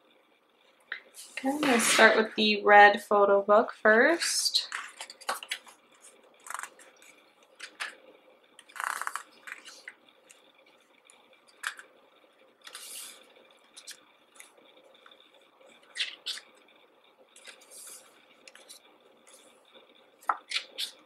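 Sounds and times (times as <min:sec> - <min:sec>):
paper pages rustling and flapping: 0:04.7 - 0:08.0, 0:08.6 - 0:10.0, 0:12.6 - 0:14.6, 0:17.4 - 0:19.5.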